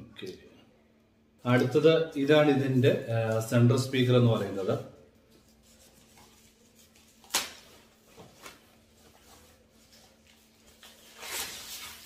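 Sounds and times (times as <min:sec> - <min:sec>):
wrapping rustling: 0:05.2 - 0:12.0.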